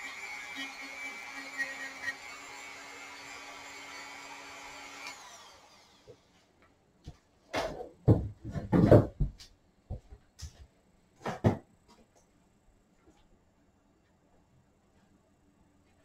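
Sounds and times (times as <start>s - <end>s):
clunks and knocks: 7.6s - 10.6s.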